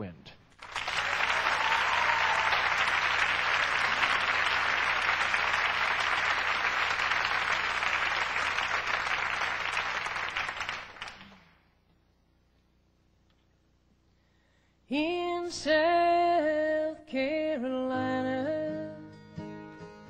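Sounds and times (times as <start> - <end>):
audience applauding: 0.6 - 11.6.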